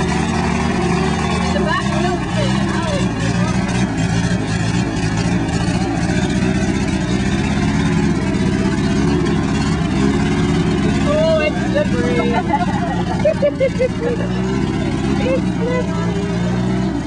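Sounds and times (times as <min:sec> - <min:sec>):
jeep engine running at low revs: 0:00.0 - 0:17.0.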